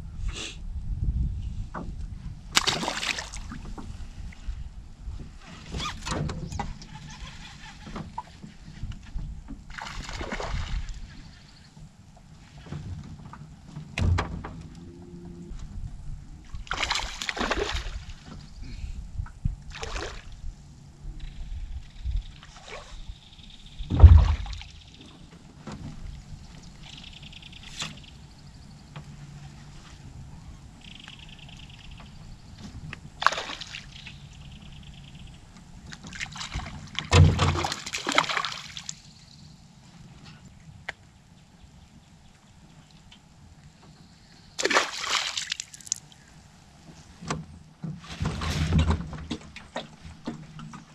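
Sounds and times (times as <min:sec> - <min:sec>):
fish splashing at water surface: 0:02.6 - 0:03.5, 0:16.7 - 0:18.2, 0:33.2 - 0:33.9, 0:36.1 - 0:39.0, 0:44.6 - 0:46.2.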